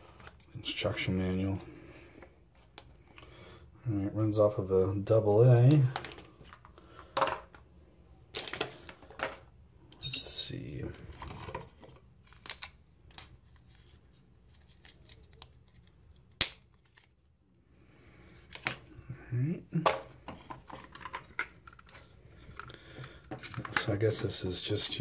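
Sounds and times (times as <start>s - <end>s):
plastic packaging crinkling: 11.1s - 17.4s.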